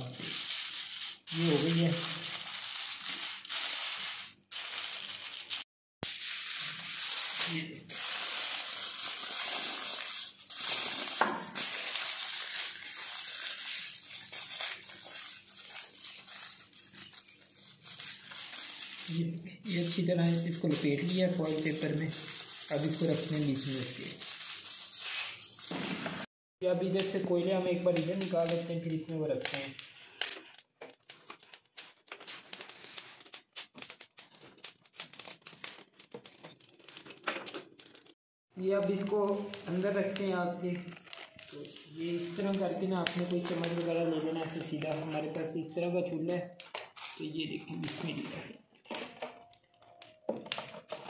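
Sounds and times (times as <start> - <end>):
aluminium foil crinkling: 0.0 - 25.8, 26.9 - 51.0
wood fire crackling: 37.9 - 45.6.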